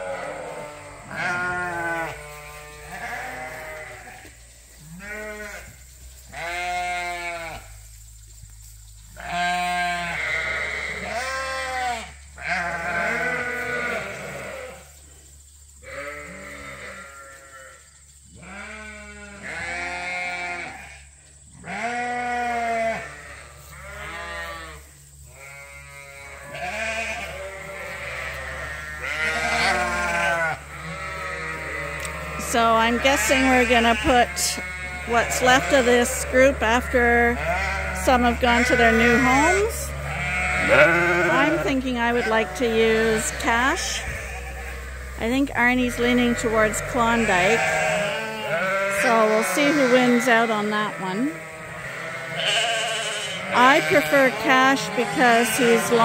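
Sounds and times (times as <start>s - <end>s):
sheep bleating: 0.0s - 7.7s, 9.2s - 14.9s, 15.8s - 17.8s, 18.4s - 21.0s, 21.6s - 56.0s.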